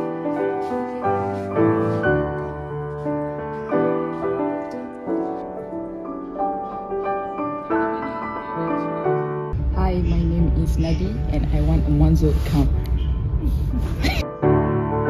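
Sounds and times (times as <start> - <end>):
solo piano music: 0.0 - 9.6, 14.2 - 15.0.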